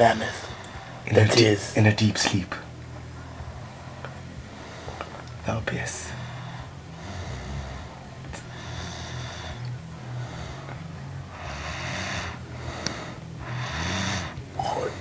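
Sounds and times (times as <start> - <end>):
person snoring heavily: 6.1 - 15.0.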